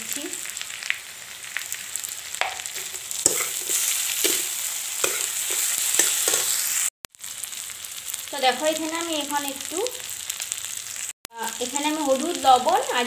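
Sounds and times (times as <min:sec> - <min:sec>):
fish sizzling in hot oil: 0:00.0 - 0:13.0
metal spatula scraping a pan: 0:02.6 - 0:06.7.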